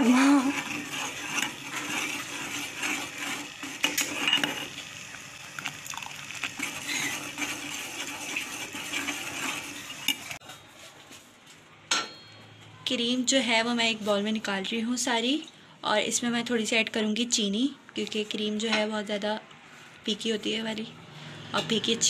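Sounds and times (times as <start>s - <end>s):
metal spoon scraping pot: 0.0s - 10.5s.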